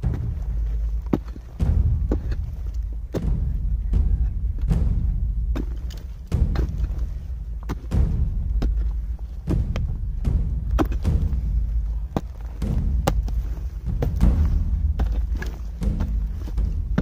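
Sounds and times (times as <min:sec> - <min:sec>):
soil falling: 0:00.0 - 0:04.8, 0:05.5 - 0:17.0
low rumble: 0:00.0 - 0:17.0
pickaxe striking earth and stone: 0:10.6 - 0:11.4, 0:12.1 - 0:17.0.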